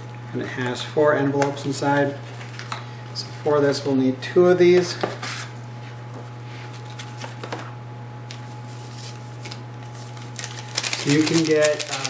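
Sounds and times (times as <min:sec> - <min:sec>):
steady low hum: 0:00.0 - 0:12.0
paper rustling: 0:08.7 - 0:12.0.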